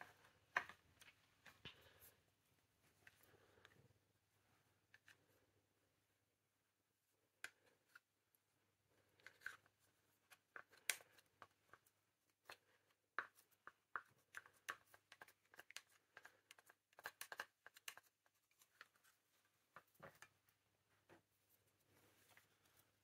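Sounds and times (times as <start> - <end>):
sticky clicks of sticks in paint: 13.2 - 18.2.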